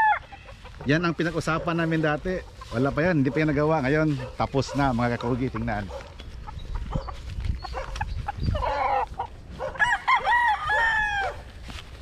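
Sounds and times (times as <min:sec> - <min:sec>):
roosters crowing: 0:00.0 - 0:01.2, 0:05.4 - 0:11.6.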